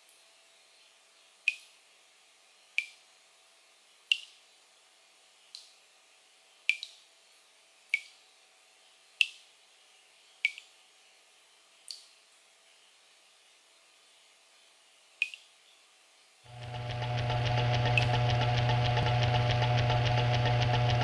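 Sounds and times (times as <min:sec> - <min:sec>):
water dripping into basin: 0:01.5 - 0:01.7, 0:04.1 - 0:04.4, 0:06.7 - 0:07.0, 0:07.9 - 0:08.2, 0:10.4 - 0:10.7, 0:11.8 - 0:12.1, 0:15.2 - 0:15.5
faint steady hum: 0:16.2 - 0:21.0.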